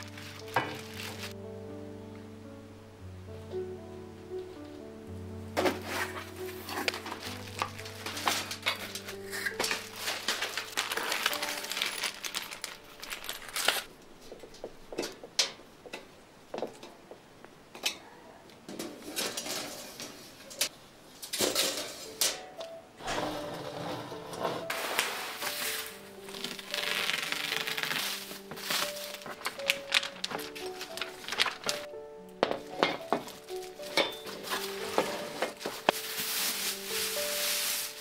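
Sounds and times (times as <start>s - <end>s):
cardboard and plastic wrap rustling: 0.0s - 1.4s, 5.5s - 13.9s, 23.1s - 38.0s
soft background music: 0.0s - 15.0s, 21.4s - 38.0s
metal drawers clinking and rattling: 5.6s - 13.9s, 18.7s - 25.9s, 32.6s - 37.1s.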